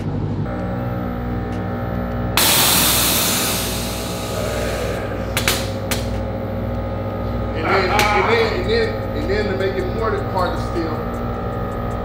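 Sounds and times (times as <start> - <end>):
car engine idling: 0.4 - 12.0
loud hiss: 2.4 - 5.7.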